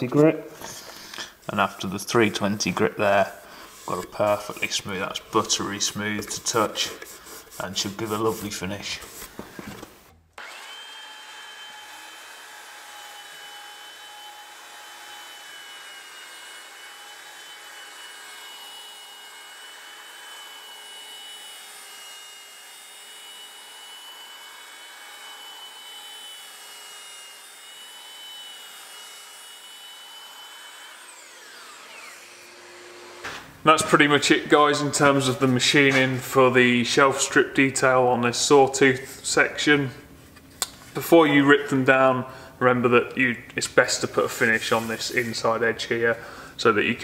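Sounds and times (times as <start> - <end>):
orbital sander running on wood: 10.4 - 33.2.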